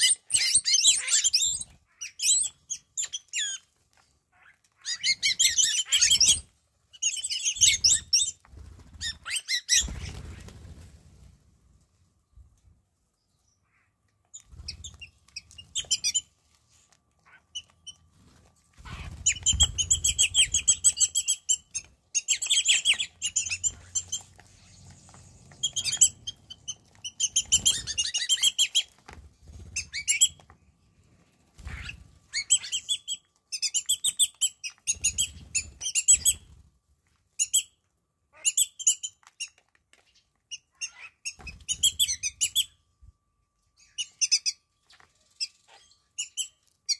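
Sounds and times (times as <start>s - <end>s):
starlings chattering: 18.8s - 28.9s.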